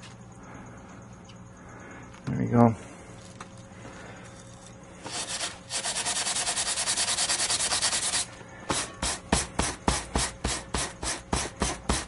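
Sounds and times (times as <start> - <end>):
metal sponge scrubbing zinc plate: 5.1 - 8.3.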